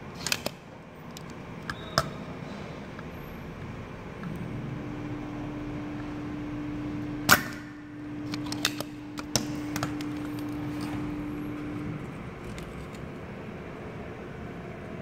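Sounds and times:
steady low hum: 0:00.0 - 0:15.0
desoldering pump snap: 0:07.2 - 0:10.9.

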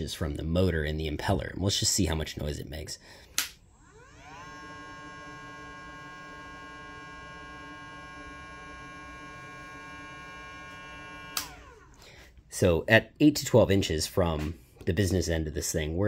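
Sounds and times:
electric pump motor humming: 0:03.7 - 0:12.0.

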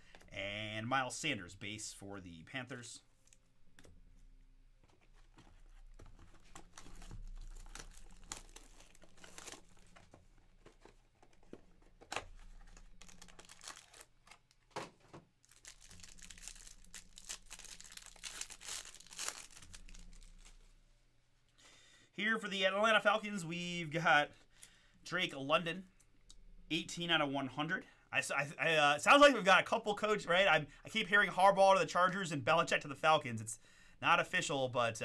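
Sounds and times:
wrapper crinkling and tearing: 0:05.6 - 0:11.0, 0:12.0 - 0:14.6, 0:15.4 - 0:20.8.

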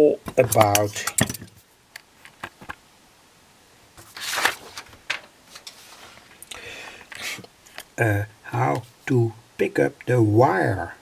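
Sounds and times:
handling rustling noise: 0:00.3 - 0:02.8, 0:04.0 - 0:07.9.

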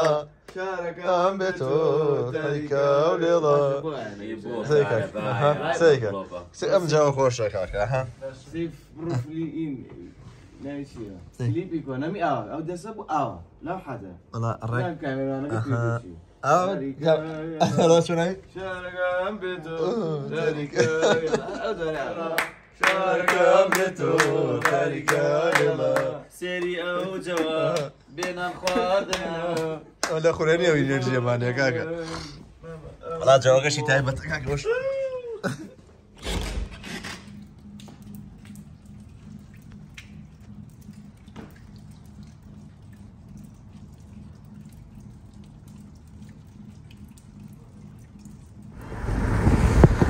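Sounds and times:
hand claps: 0:00.0 - 0:00.7, 0:22.0 - 0:30.2
man singing chant-like melody: 0:00.0 - 0:04.2
water dripping: 0:00.0 - 0:08.0, 0:16.4 - 0:36.2, 0:36.8 - 0:50.0
low steady hum: 0:00.0 - 0:50.0.

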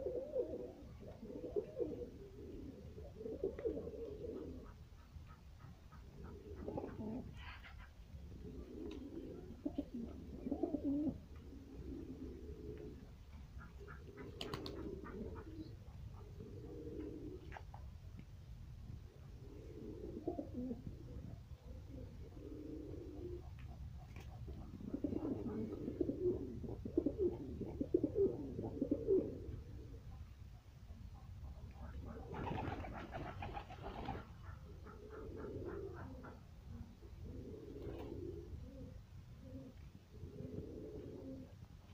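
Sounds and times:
pigeons cooing: 0:00.0 - 0:18.0, 0:19.1 - 0:41.9.

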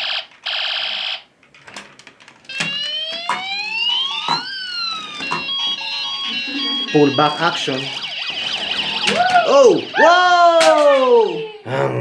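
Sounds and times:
toy buzzing alarm tone: 0:02.5 - 0:11.7
toy wailing siren: 0:02.5 - 0:11.7.

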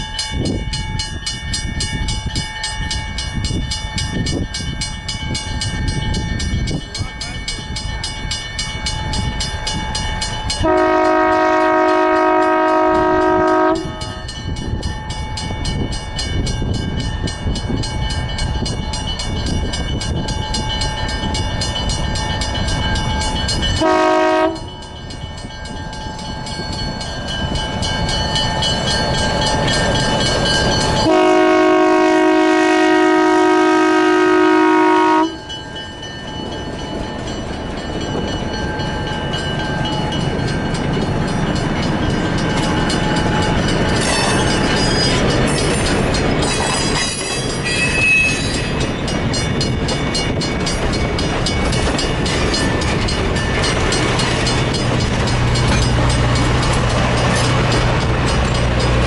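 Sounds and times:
diesel locomotive engine rumbling: 0:00.0 - 0:59.0
train air horn blasts: 0:10.6 - 0:14.2, 0:23.8 - 0:24.8, 0:31.0 - 0:35.4
wheels clicking over rail joints: 0:35.5 - 0:59.0.

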